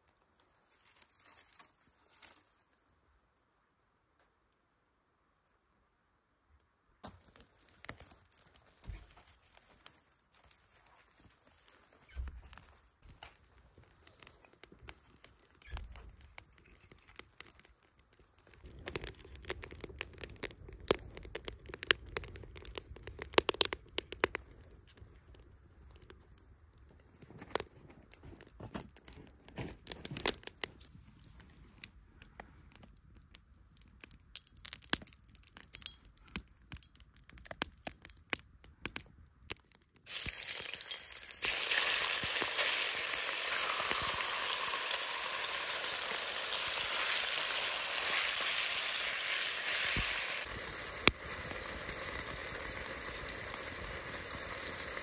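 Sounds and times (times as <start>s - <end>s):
wood fire crackling and popping: 0.0s - 2.7s, 6.9s - 55.0s
meat sizzling in a pot: 40.1s - 55.0s.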